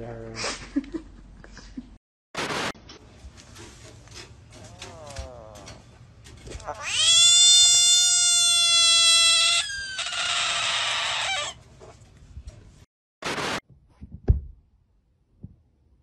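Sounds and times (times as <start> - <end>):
bullfrog screaming: 6.6 - 11.6.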